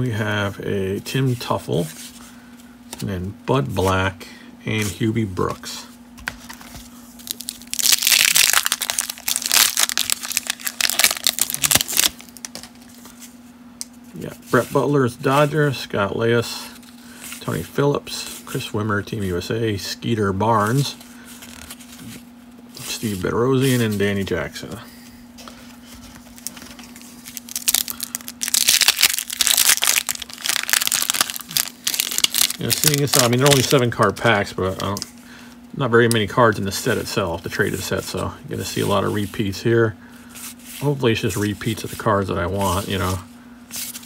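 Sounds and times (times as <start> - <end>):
paper wrapper tearing and crinkling: 7.2 - 13.0, 26.2 - 34.0.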